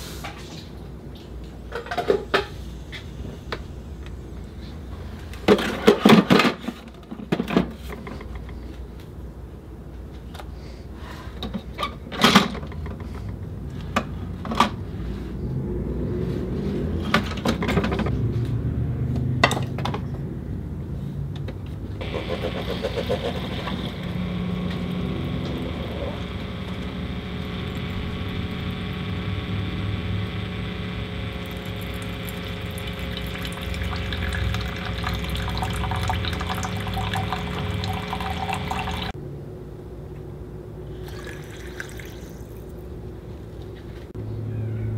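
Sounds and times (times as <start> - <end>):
coffee streaming into mug: 22.0 - 39.1, 41.0 - 42.7
coffee maker pump running: 22.0 - 39.2, 40.9 - 42.7.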